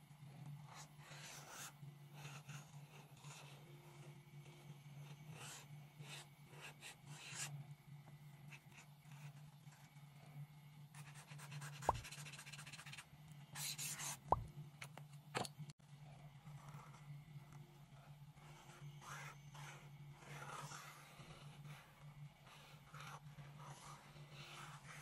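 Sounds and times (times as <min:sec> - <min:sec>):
faint low hum: 0:00.0 - 0:25.0
marker scratching on paper: 0:00.7 - 0:03.5, 0:11.0 - 0:13.0, 0:13.6 - 0:14.4.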